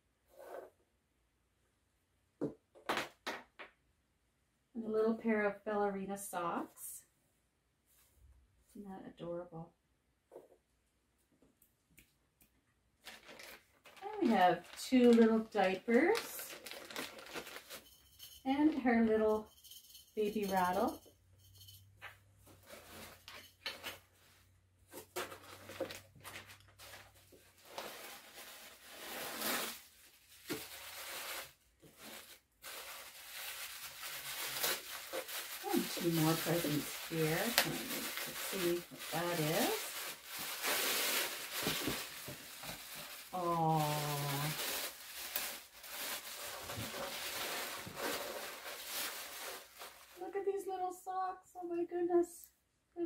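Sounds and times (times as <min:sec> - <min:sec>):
packaging and tissue paper rustling: 0:13.0 - 0:18.3, 0:22.4 - 0:50.5.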